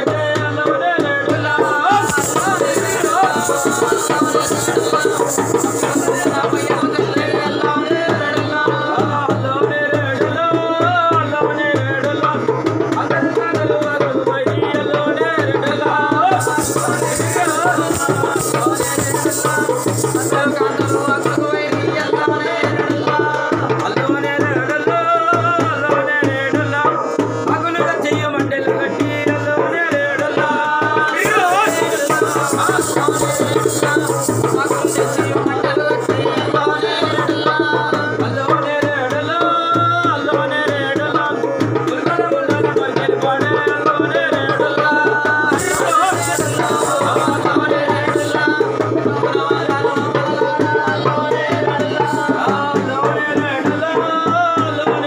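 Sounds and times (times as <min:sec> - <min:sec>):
hand drum rhythm: 0:00.0 - 0:55.0
voices singing devotional song: 0:00.0 - 0:55.0
high jingling: 0:01.6 - 0:07.0, 0:16.4 - 0:21.7, 0:31.2 - 0:35.5, 0:45.6 - 0:48.2.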